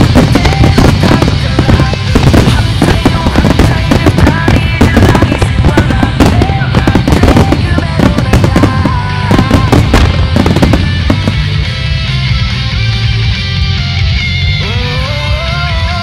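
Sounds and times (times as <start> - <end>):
fireworks bursting: 0.0 - 12.2
loud music: 0.0 - 16.0.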